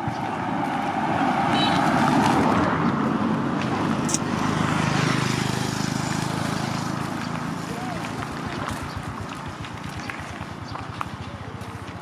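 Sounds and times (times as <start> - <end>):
motorcycle engine approaching: 3.7 - 12.0.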